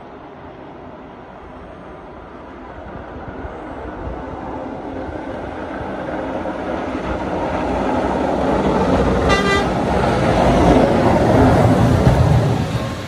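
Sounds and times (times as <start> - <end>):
truck engine and plow noise: 0.0 - 13.0
short horn toot: 9.3 - 9.7.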